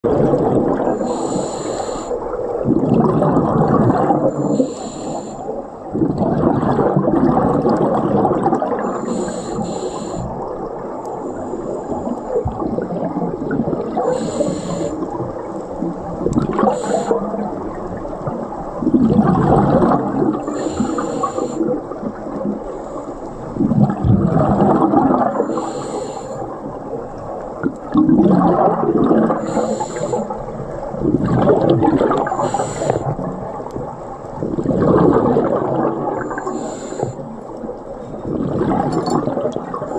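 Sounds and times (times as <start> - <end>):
exhaled bubbles rushing: 0.0 - 1.5, 2.1 - 4.7, 5.4 - 39.9
hissing regulator inhale: 1.0 - 2.3, 4.3 - 5.5, 8.8 - 10.5, 14.0 - 15.2, 16.6 - 17.3, 20.4 - 21.8, 25.3 - 26.5, 29.4 - 30.5, 32.2 - 33.2, 36.2 - 37.3.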